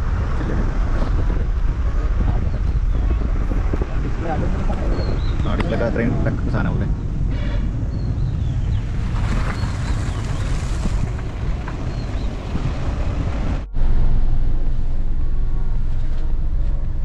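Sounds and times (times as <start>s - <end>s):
car road and wind noise: 0.0s - 17.0s.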